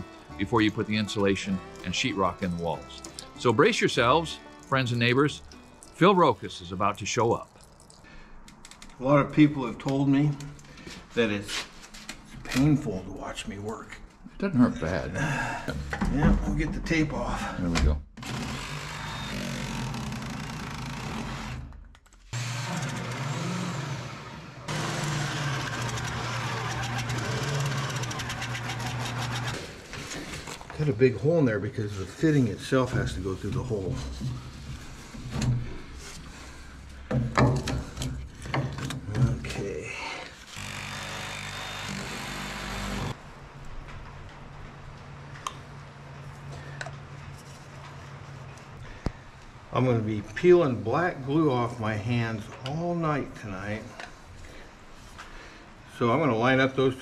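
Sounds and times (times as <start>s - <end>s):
corded drill boring wood: 18.2s - 29.7s, 40.5s - 43.2s.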